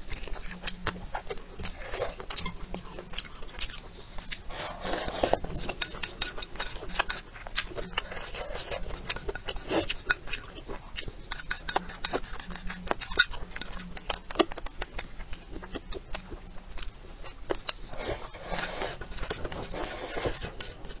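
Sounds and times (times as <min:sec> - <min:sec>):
wet chewing and lip-smacking: 0:00.0 - 0:18.4
chopsticks scraping a bowl: 0:01.6 - 0:10.6, 0:11.2 - 0:14.2, 0:17.5 - 0:21.0.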